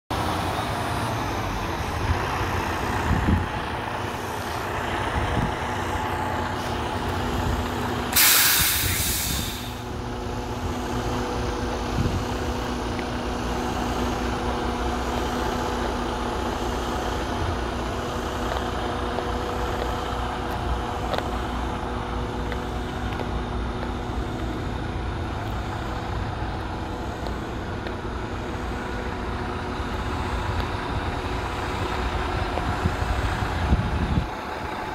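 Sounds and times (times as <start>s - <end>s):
diesel truck engine idling: 0.1s - 34.9s
air hiss from truck: 8.1s - 10.0s.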